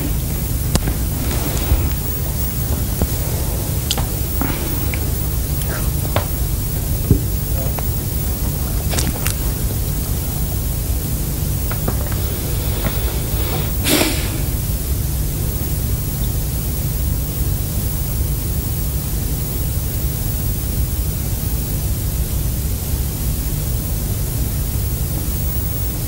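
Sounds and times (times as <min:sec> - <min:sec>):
constant hiss: 0:00.0 - 0:26.0.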